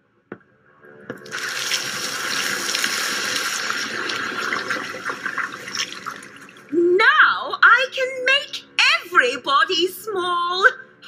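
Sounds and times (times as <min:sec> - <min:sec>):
rushing fizzing liquid: 0:01.3 - 0:06.7.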